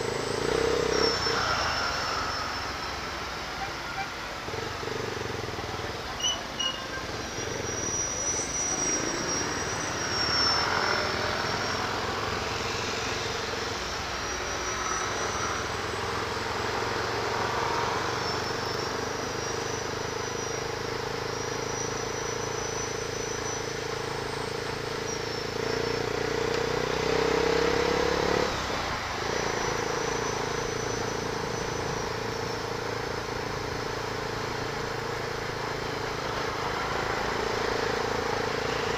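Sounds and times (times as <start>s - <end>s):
thin high whine: 0.0s - 4.1s
wind and road noise: 0.0s - 38.9s.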